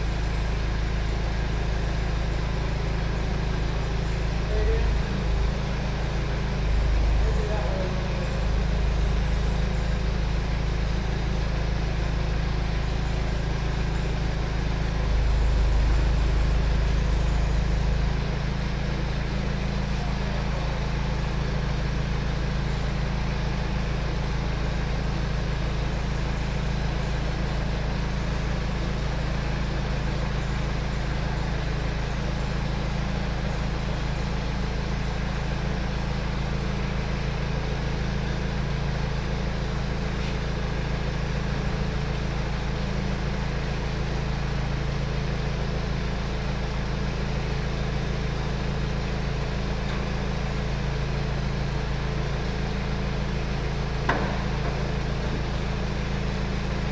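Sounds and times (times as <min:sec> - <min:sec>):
forklift engine running: 0:00.0 - 0:56.9.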